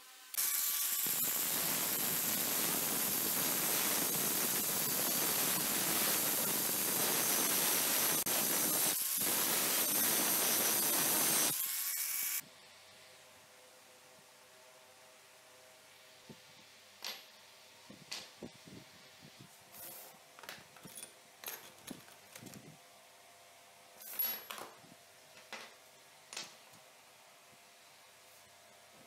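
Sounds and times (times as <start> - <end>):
angle grinder grinding metal: 0.4 - 12.4.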